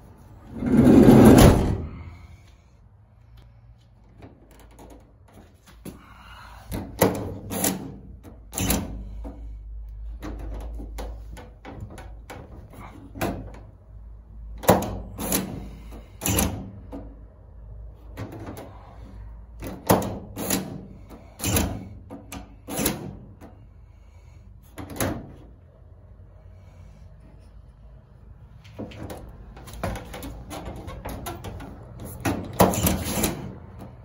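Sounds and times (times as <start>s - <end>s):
sliding door latch clacks: 28.8s - 34.0s.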